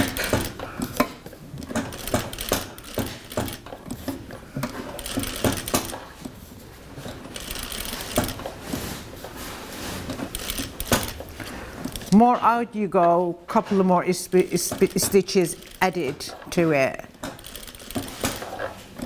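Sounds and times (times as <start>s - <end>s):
sewing machine stitching: 0.0s - 0.8s, 1.6s - 6.1s, 7.0s - 8.7s, 10.1s - 11.3s, 14.7s - 19.0s
clicks and knocks of presser foot: 0.0s - 6.4s, 17.0s - 19.0s.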